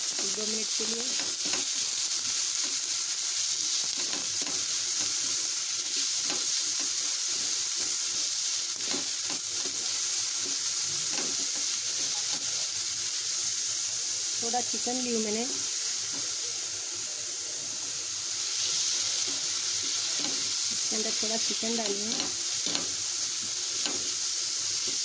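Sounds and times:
onions sizzling in a pan: 0:00.0 - 0:25.0
spatula scraping a pan: 0:18.5 - 0:25.0.

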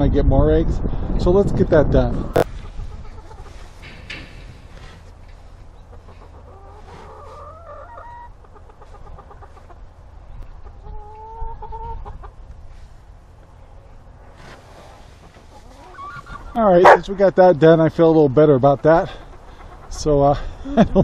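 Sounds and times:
hens calling: 0:02.3 - 0:12.6, 0:15.1 - 0:20.7.

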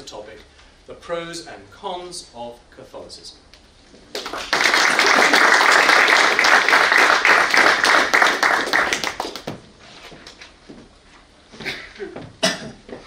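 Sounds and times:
audience applauding: 0:04.1 - 0:09.6.

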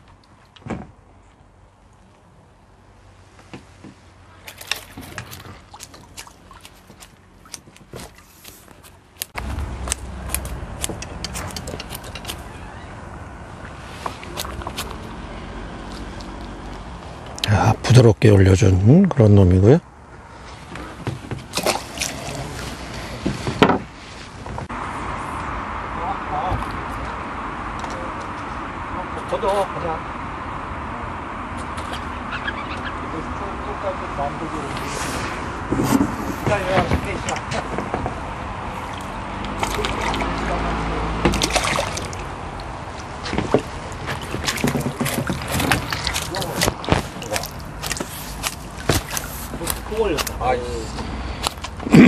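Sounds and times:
rustling of tackle: 0:03.3 - 0:09.7, 0:34.7 - 0:40.4, 0:41.1 - 0:50.4
knocks handling fish and gear: 0:03.4 - 0:12.6, 0:13.6 - 0:15.2, 0:20.6 - 0:24.7, 0:38.8 - 0:40.4, 0:41.1 - 0:51.9
water splashing and dripping: 0:04.3 - 0:17.6, 0:21.1 - 0:23.4, 0:36.4 - 0:51.8.

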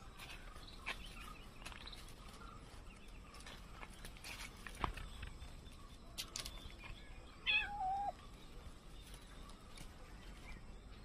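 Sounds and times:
cat meowing: 0:07.5 - 0:08.1.

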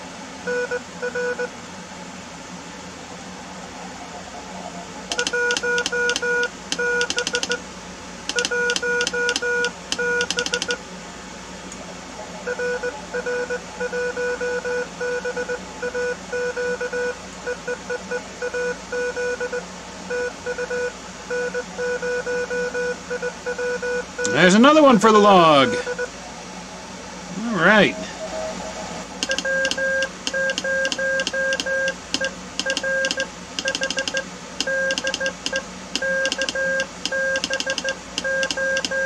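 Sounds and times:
morse code tones: 0:05.1 - 0:07.6, 0:08.3 - 0:10.8, 0:12.5 - 0:26.1, 0:29.2 - 0:39.0
radio hiss: 0:24.2 - 0:29.2.

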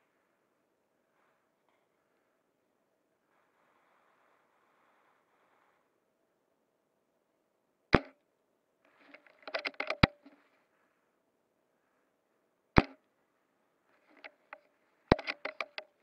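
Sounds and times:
airsoft rifle shot: 0:08.0 - 0:08.2, 0:12.8 - 0:13.0
rifle bolt clicks and rattles: 0:09.0 - 0:10.4, 0:14.0 - 0:16.0.

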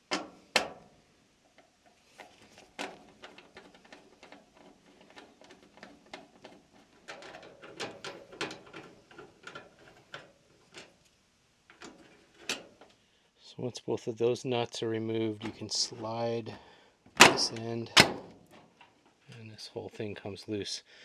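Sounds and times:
nut driver clicking and scraping: 0:01.5 - 0:11.1, 0:11.7 - 0:13.0.

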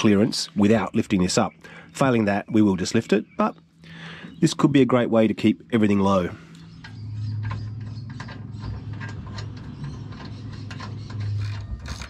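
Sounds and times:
steady low hum: 0:00.0 - 0:12.0
metallic clicks and rattles: 0:06.5 - 0:12.0.

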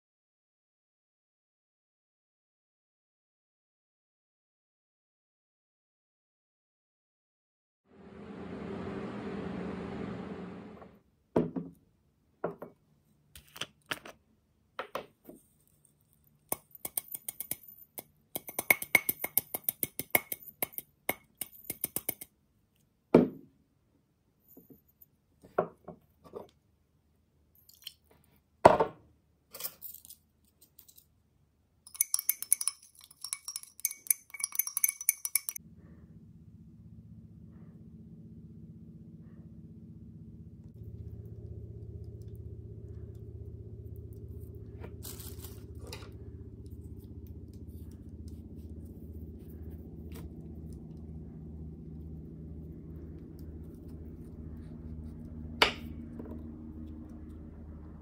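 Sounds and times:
glass beaker clinking: 0:31.9 - 0:35.6.

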